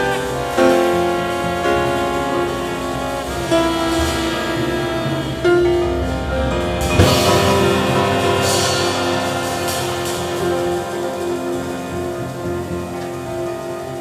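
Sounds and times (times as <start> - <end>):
double bass: 0.0 - 14.0
drums: 0.0 - 14.0
piano: 0.0 - 14.0
saxophone: 0.0 - 14.0
trumpet: 0.0 - 14.0
ringing cymbal wash: 3.1 - 14.0.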